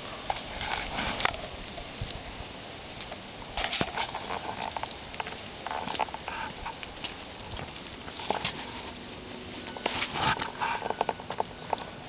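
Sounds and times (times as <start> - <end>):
puppies scuffling in grass: 0.0 - 12.0.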